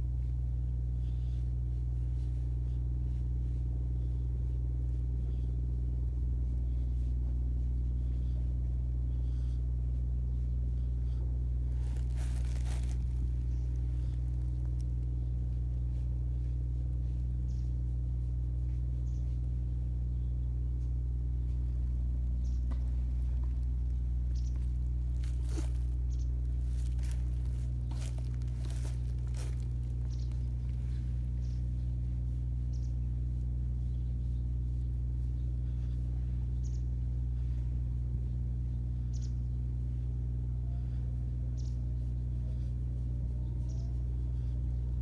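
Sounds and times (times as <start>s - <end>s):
hand rustling fur: 11.7s - 15.1s, 22.9s - 32.6s.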